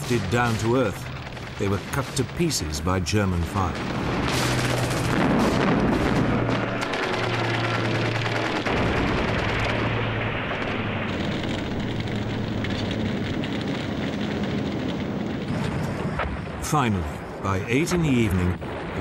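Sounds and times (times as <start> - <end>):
rapid gunfire: 0.0 - 10.3, 11.0 - 15.7
rumble of explosions: 0.0 - 19.0.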